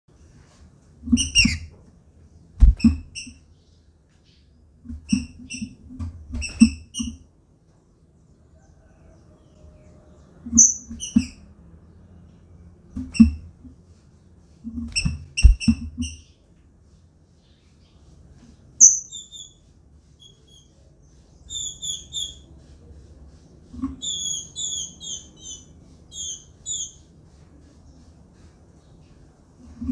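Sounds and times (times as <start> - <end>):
dull thumps: 2.6 - 3.2
bird chirping: 9.3 - 11.4, 18.8 - 19.6, 20.2 - 22.9, 23.5 - 29.9.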